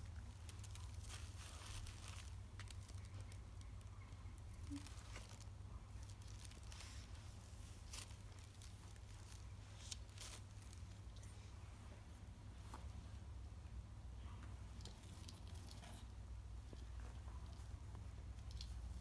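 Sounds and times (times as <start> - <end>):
tissue paper rustling and crinkling: 0.0 - 11.4
low steady hum: 0.0 - 19.0.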